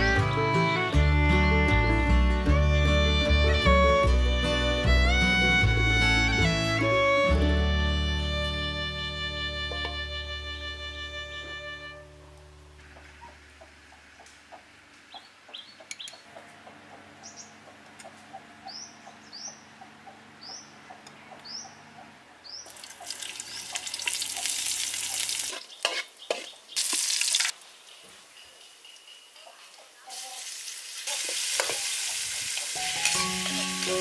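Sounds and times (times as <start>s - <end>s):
small bird chirping: 12.9s - 16.4s, 17.0s - 27.0s, 27.6s - 30.4s
food sizzling in hot oil: 22.8s - 27.5s, 30.1s - 34.0s.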